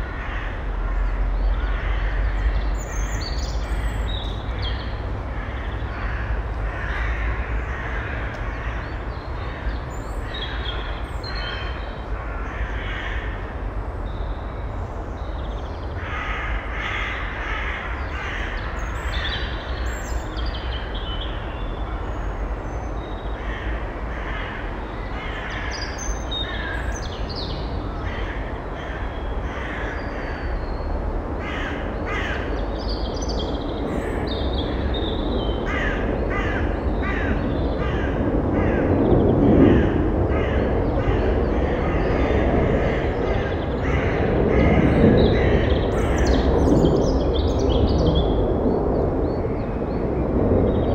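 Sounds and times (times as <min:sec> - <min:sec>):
crows cawing: 0:00.0 - 0:02.6, 0:05.3 - 0:13.6, 0:16.0 - 0:19.5, 0:23.4 - 0:27.1, 0:27.9 - 0:30.6, 0:31.4 - 0:32.9, 0:35.6 - 0:46.5.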